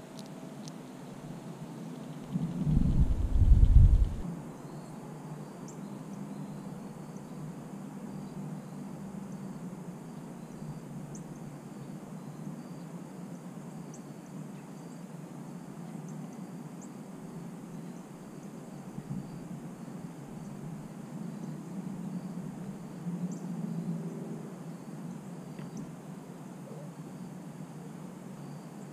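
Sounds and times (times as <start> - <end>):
faint insect chirping: 0.0 - 28.9
steady low rumble: 2.2 - 4.3.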